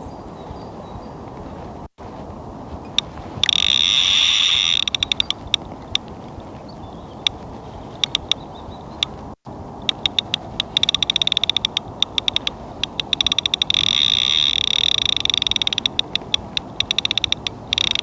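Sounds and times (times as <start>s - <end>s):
wind noise on microphone: 0.0s - 18.0s
fishing reel ratchet clicking: 3.4s - 5.6s, 9.9s - 18.0s.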